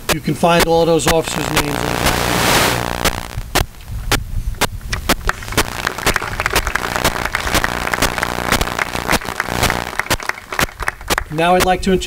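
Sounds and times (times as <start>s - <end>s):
audience applauding: 5.2s - 11.4s.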